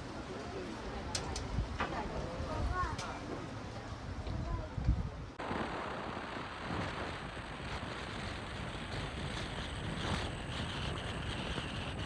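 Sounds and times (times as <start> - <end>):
wind rushing over microphone: 4.1 - 12.0.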